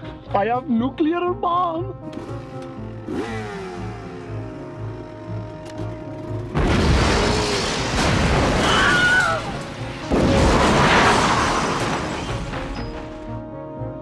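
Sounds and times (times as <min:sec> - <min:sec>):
explosion blasts: 0:06.5 - 0:12.7.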